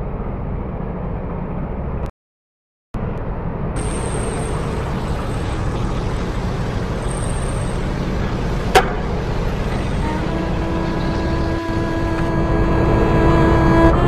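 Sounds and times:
low rumbling noise: 0.0 - 2.1, 3.0 - 14.0
held music notes: 3.8 - 14.0.

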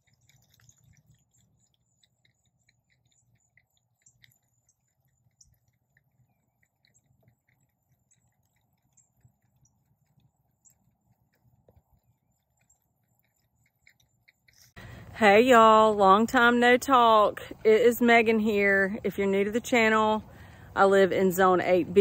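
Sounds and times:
soft high chirps: 0.0 - 15.0.

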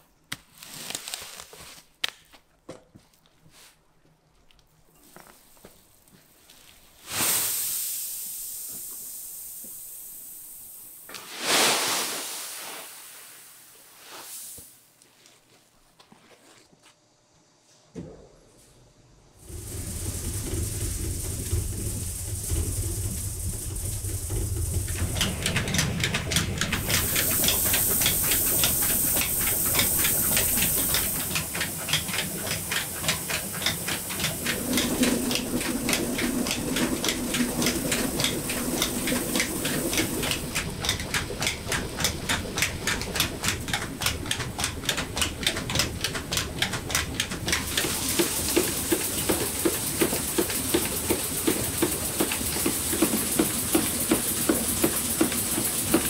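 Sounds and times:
rice milling machinery hum: 5.0 - 56.0
hiss of grain: 6.2 - 15.0, 19.4 - 43.2, 47.6 - 56.0
rhythmic clatter: 19.4 - 56.0.

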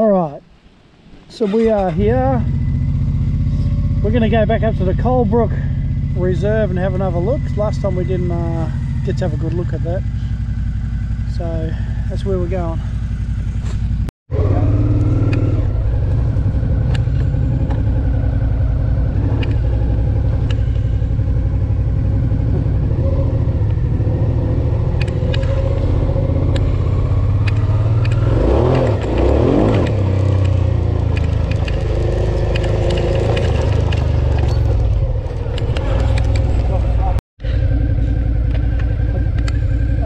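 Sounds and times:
motorcycle engine running: 1.8 - 40.0
clicks: 19.4 - 19.7, 25.0 - 25.6, 27.4 - 36.7, 38.5 - 39.6.

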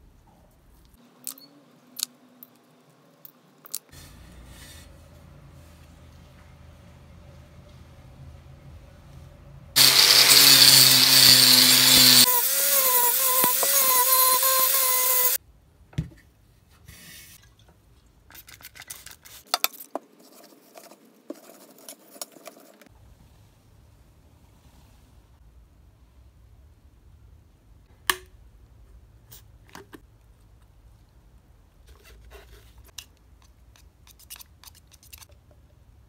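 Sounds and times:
power tool running: 9.8 - 15.4.

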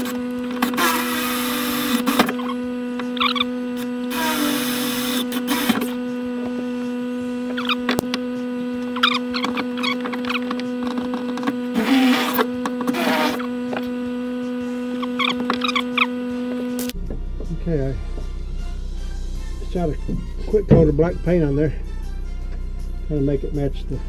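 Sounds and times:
cordless drill whirring: 0.0 - 17.0
steady low hum: 0.0 - 24.0.

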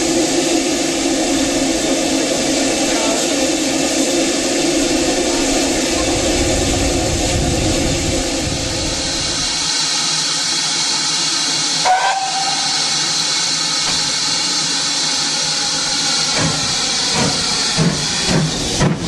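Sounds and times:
steam hissing: 0.0 - 19.0
steam locomotive exhaust beats: 0.0 - 19.0
steam whistle toot: 11.8 - 13.1.

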